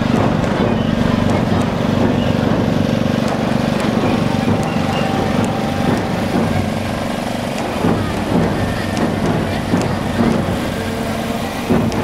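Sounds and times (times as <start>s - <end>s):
petrol generator engine running: 0.0s - 12.0s.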